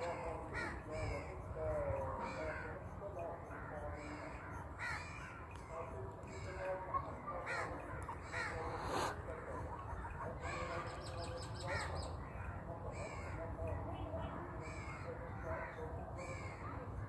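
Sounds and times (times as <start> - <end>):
crows cawing: 0.0 - 1.4, 3.5 - 11.0, 11.6 - 13.5, 14.6 - 16.8.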